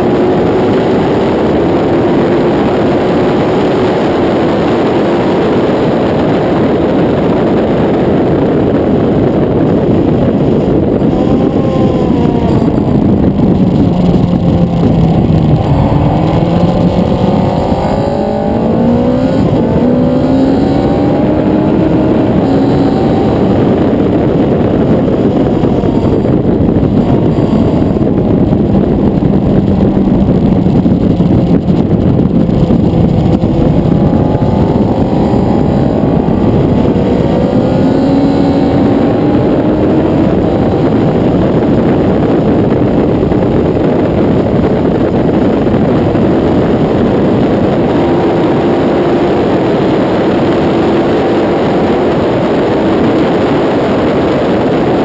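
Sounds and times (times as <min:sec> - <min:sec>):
motorcycle engine revving: 0:00.0 - 0:55.0
wind rush on microphone: 0:00.0 - 0:55.0.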